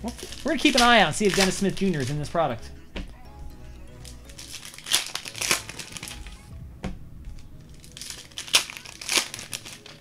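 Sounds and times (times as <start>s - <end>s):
plastic wrapping crinkling: 0.0s - 2.4s, 4.0s - 6.5s, 7.6s - 10.0s.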